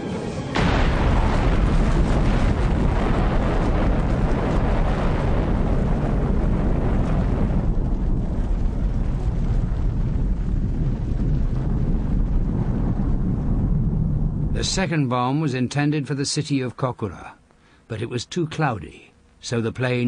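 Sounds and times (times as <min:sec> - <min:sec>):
explosion rumble with hiss: 0:00.6 - 0:14.9.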